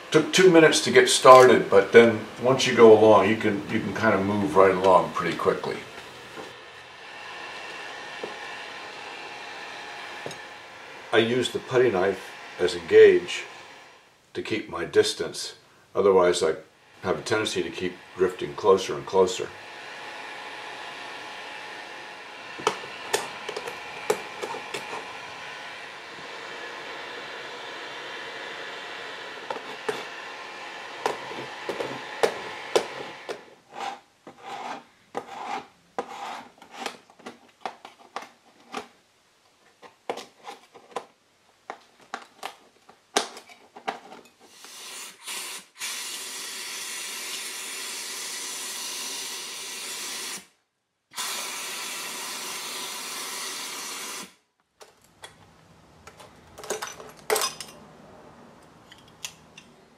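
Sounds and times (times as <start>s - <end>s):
heat gun fan hissing: 0.0s - 14.2s, 15.9s - 33.6s, 44.5s - 54.4s
putty knife scraping putty: 31.0s - 37.2s
broken glass clinking: 56.6s - 57.8s.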